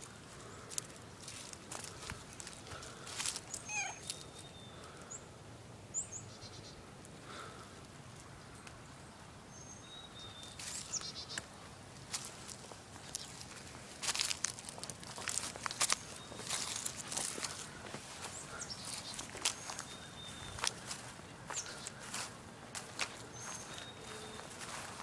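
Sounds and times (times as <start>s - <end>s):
footsteps crunching through dry leaves: 0.0s - 4.5s, 10.2s - 25.0s
high bird calls and chirps: 3.4s - 5.2s, 9.5s - 11.4s, 15.6s - 17.6s, 18.2s - 22.0s, 23.2s - 25.0s.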